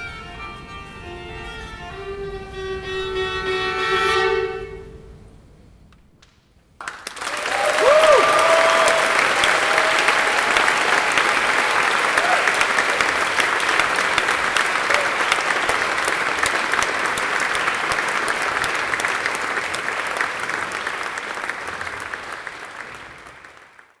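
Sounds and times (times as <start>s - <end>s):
audience applauding: 6.8s - 24.0s.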